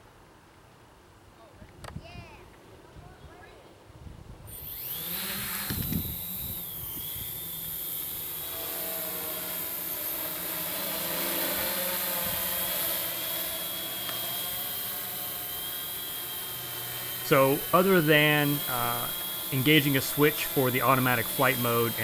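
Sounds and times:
drone propellers whirring: 0:04.5 - 0:22.0.

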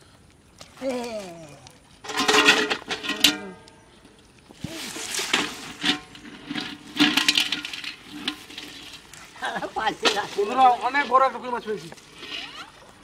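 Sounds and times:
net scraping on gravel: 0:04.5 - 0:13.0.

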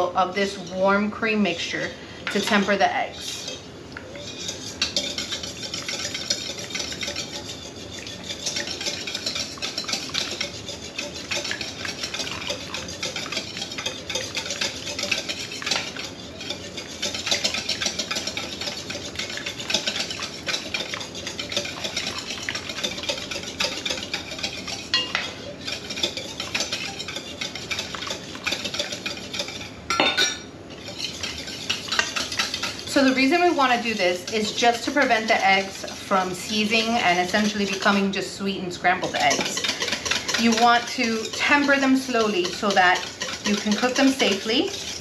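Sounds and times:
whisk clattering in metal bowl: 0:02.2 - 0:45.0
ladle clanking into saucepan: 0:24.9 - 0:27.0, 0:28.6 - 0:32.7.

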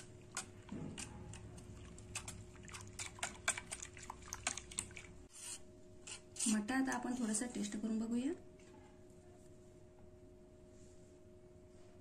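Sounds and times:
liquid splashing: 0:00.0 - 0:05.3.

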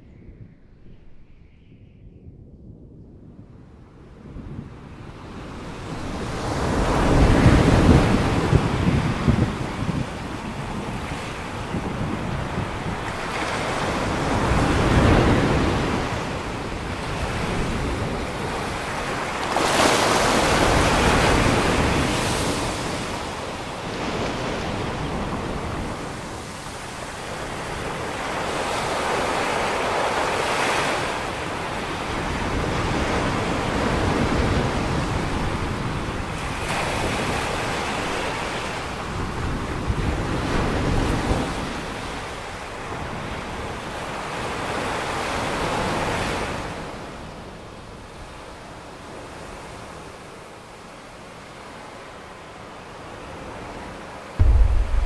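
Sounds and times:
ocean surf breaking on shore: 0:54.4 - 0:55.0.

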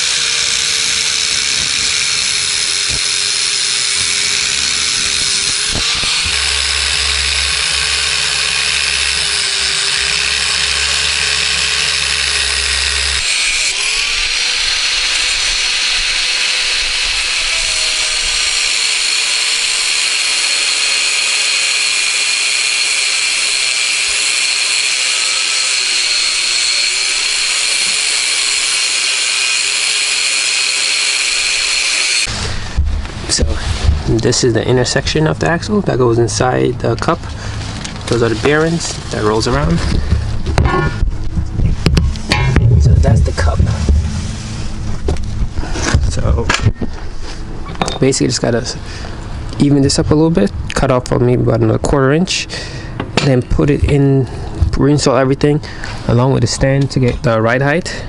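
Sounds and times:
angle grinder cutting metal: 0:00.0 - 0:37.1, 0:37.9 - 0:41.0, 0:42.1 - 0:43.8.

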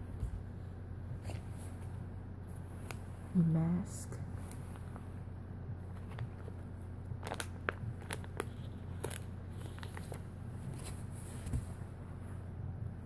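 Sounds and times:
steady low hum: 0:00.0 - 0:13.0
plastic packaging crinkling: 0:05.9 - 0:11.5.

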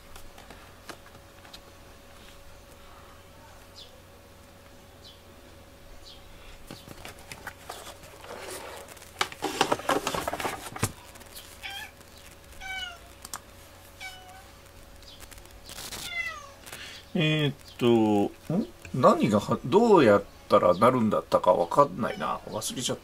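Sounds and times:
cat mewing: 0:11.6 - 0:12.0, 0:12.6 - 0:13.1, 0:14.0 - 0:14.5, 0:16.0 - 0:16.6.

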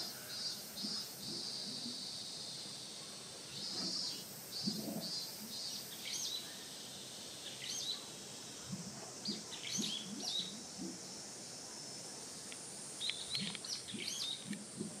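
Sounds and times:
steady background hiss: 0:00.0 - 0:15.0
small birds chirping: 0:03.5 - 0:11.2, 0:12.4 - 0:14.9.

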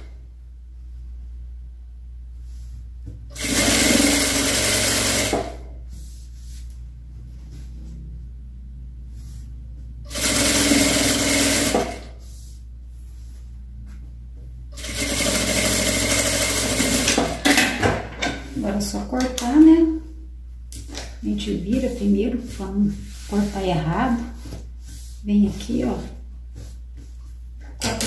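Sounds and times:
sewing machine stitching fabric: 0:03.3 - 0:05.7, 0:10.1 - 0:12.1, 0:14.8 - 0:17.6, 0:27.7 - 0:28.0.

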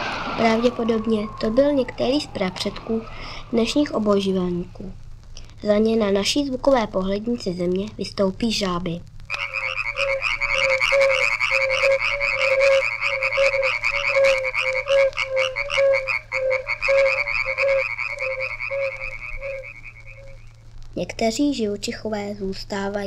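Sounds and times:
frogs croaking: 0:00.0 - 0:04.7, 0:09.3 - 0:20.6
steady low hum: 0:00.0 - 0:23.0.

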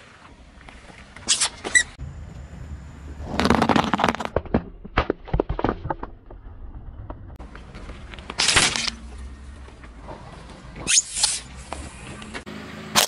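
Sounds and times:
tyre crushing a balloon: 0:03.2 - 0:05.9.

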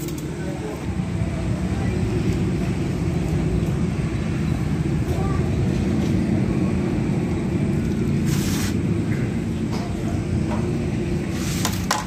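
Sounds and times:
low rumble of machinery: 0:00.0 - 0:12.0
hissing rustle: 0:08.1 - 0:08.8.

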